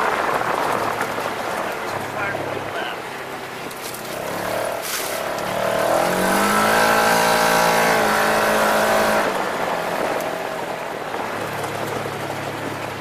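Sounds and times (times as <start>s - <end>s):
utility vehicle engine revving: 0.0s - 13.0s.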